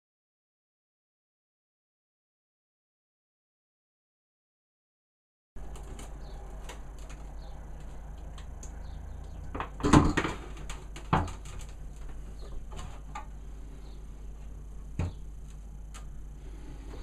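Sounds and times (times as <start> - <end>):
steady low hum: 5.6 - 17.0.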